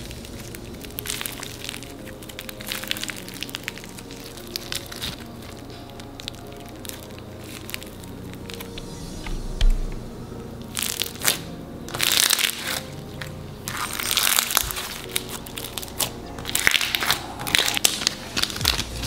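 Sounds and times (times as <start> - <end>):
slime crunching and crackling: 0.0 - 9.0, 10.6 - 19.0
background music: 0.0 - 19.0.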